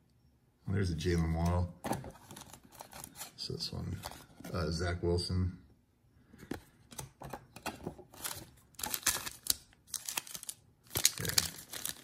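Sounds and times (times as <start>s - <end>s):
cards in plastic sleeves rustling: 1.4s - 4.8s, 6.4s - 12.0s
foil card pack crinkling: 8.1s - 12.0s.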